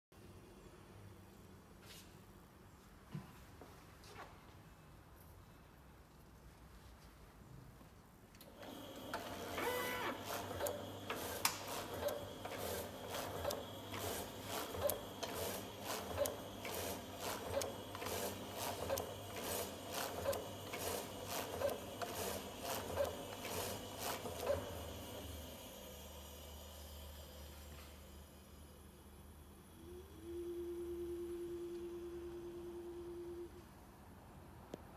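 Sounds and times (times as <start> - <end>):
meat slicer mechanical clatter: 8.5 - 27.9
slicer motor hum: 8.5 - 28.2.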